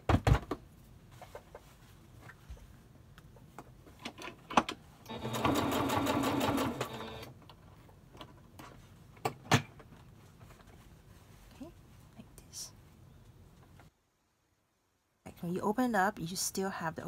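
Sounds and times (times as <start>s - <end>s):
sewing machine stitching: 5.1s - 7.3s.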